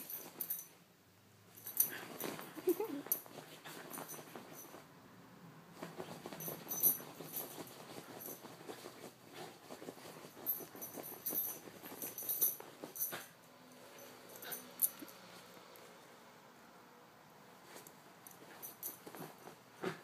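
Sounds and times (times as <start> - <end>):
collar metal jingling: 1.5 - 4.8, 5.9 - 15.2
dog scratching duvet: 5.7 - 13.0.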